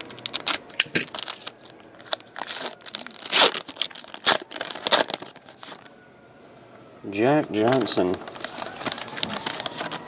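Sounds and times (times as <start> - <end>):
wrapper tearing and crinkling: 0.0 - 5.9, 7.4 - 10.0.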